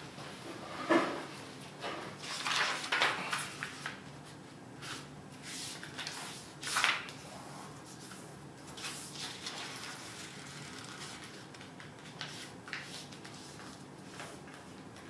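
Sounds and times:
paper being folded and creased: 8.8 - 13.8.

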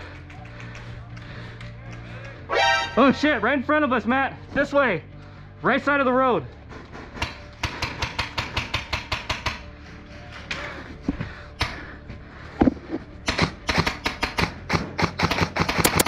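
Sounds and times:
airsoft rifle firing: 13.3 - 16.0.

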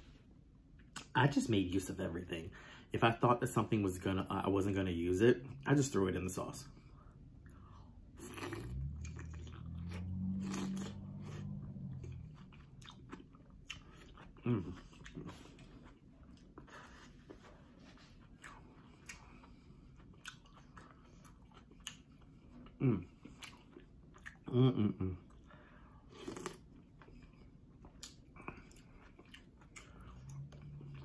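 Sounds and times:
person chewing: 7.4 - 31.0
person humming: 24.5 - 25.2.

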